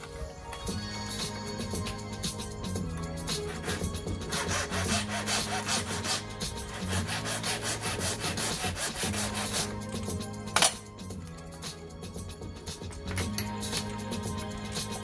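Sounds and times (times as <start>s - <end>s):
background music: 0.0s - 15.0s
hand file rasping: 3.2s - 9.9s.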